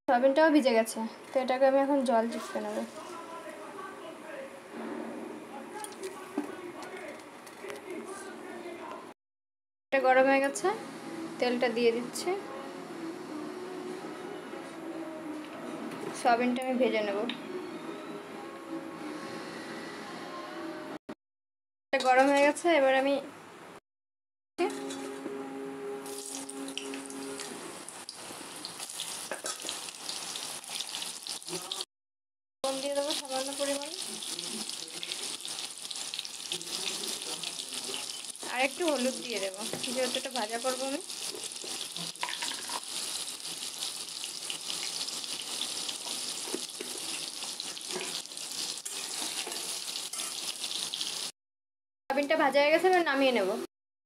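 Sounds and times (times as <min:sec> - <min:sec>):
food sizzling in hot oil: 0:26.0 - 0:31.9, 0:32.7 - 0:51.4.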